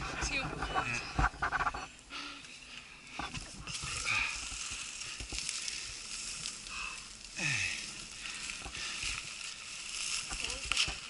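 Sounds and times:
bike tyres crackling over leaves: 0:02.1 - 0:11.0
bike clicks and rattles: 0:02.4 - 0:06.6.

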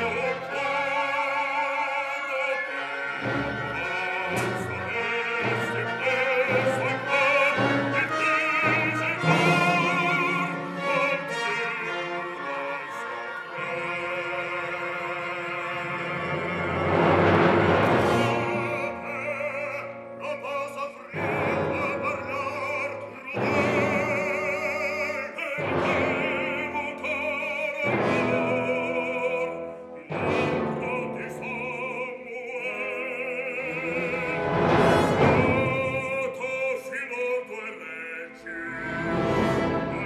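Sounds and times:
loud orchestral chords: 0:00.0 - 0:40.0
orchestra playing: 0:00.0 - 0:40.0
operatic bass voice singing: 0:17.8 - 0:40.0.

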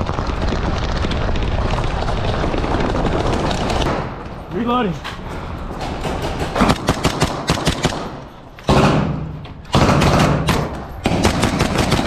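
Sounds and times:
rifles firing blank rounds: 0:06.0 - 0:12.0.

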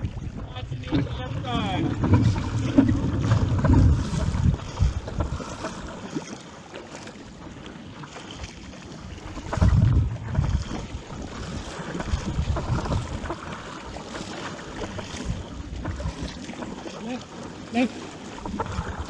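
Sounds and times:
wind buffeting microphone: 0:00.0 - 0:06.2, 0:08.9 - 0:14.1, 0:14.8 - 0:16.9, 0:18.3 - 0:19.0
water noise: 0:00.0 - 0:19.0.

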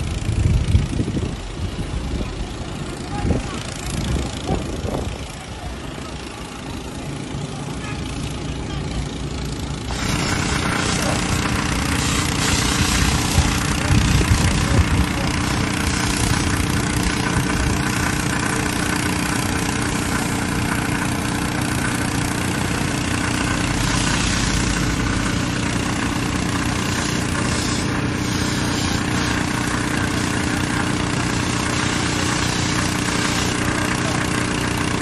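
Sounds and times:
engine running: 0:00.0 - 0:35.0
rushing hiss: 0:09.9 - 0:34.6
low hum: 0:22.7 - 0:27.8.

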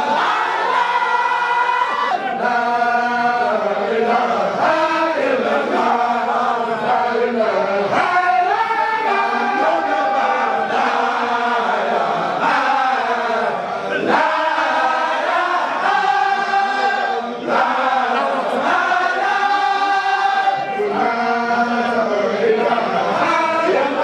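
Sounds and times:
men chanting in unison: 0:00.0 - 0:24.0.

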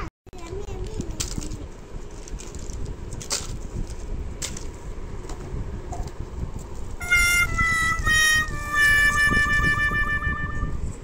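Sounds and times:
low steady rumble: 0:00.4 - 0:11.0
plastic wrappers rustling: 0:00.5 - 0:04.7.

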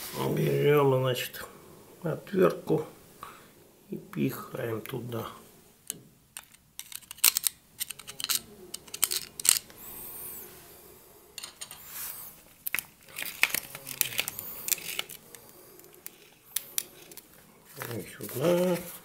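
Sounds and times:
screwdriver clicking and scraping gears: 0:06.4 - 0:09.7.

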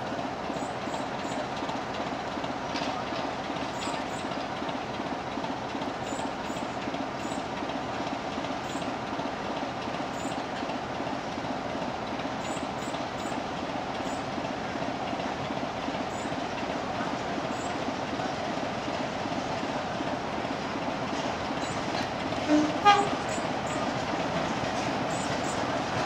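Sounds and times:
diesel locomotive engine running: 0:00.0 - 0:26.0.

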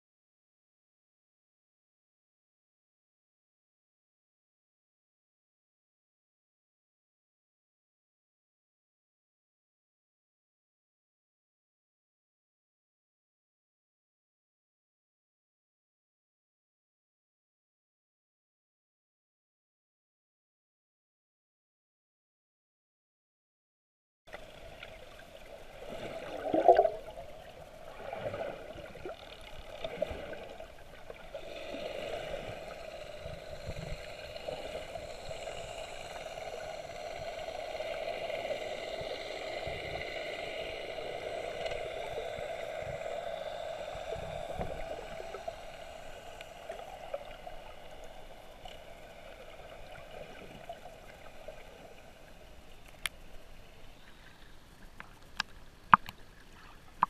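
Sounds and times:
steady hum: 0:24.4 - 0:54.9
water gurgling underwater: 0:25.9 - 0:27.2.

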